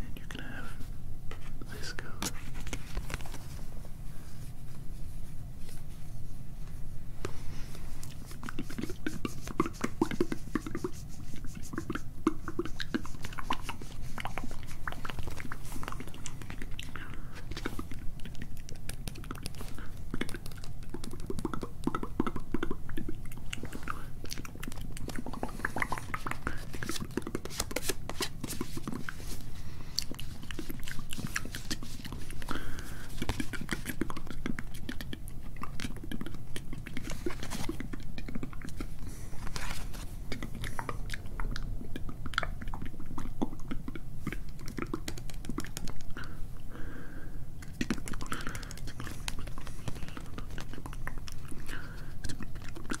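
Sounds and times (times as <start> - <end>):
whispering: 0.0 - 2.6
mouth clicks and crackles: 7.2 - 46.7, 47.6 - 53.0.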